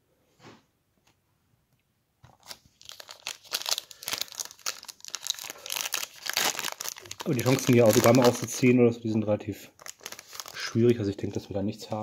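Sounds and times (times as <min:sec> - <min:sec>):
foil wrapper crinkling and tearing: 0:02.3 - 0:08.6, 0:09.8 - 0:10.9.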